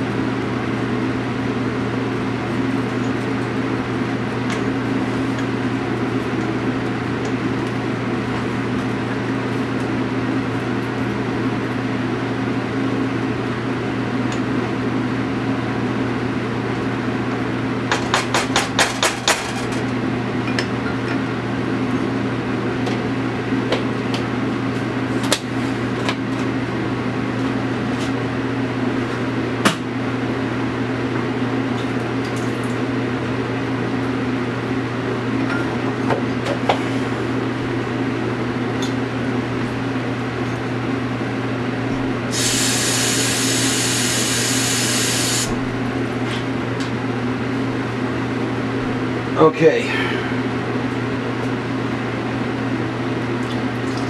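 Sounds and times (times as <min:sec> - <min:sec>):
kitchen appliance humming: 0:42.2 - 0:46.2.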